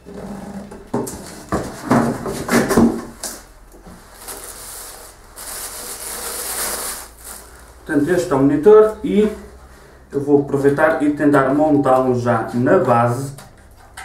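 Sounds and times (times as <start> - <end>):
packaging rubbing and scraping: 1.2 - 7.8.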